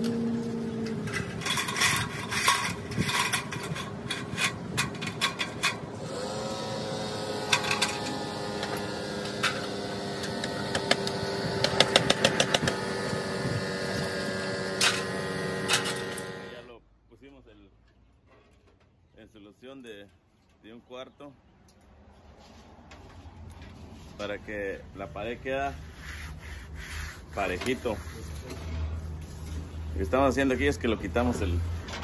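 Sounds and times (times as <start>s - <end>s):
air compressor humming: 6.0s - 16.7s
clicks and taps fastening boards: 10.4s - 12.8s.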